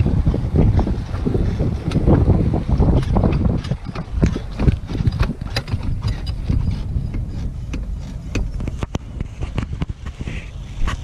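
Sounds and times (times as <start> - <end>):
wind rumbling on microphone: 0.0 - 11.0
knocks and clicks of seat: 3.0 - 10.2.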